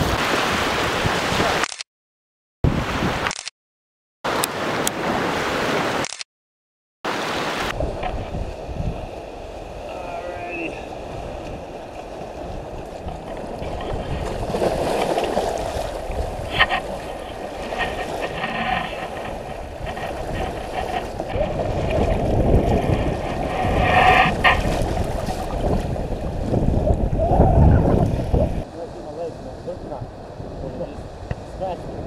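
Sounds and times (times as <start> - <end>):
surf washing and splashing: 0.0 - 1.6, 4.3 - 6.0, 7.1 - 32.0
wind rumble on microphone: 7.6 - 32.0.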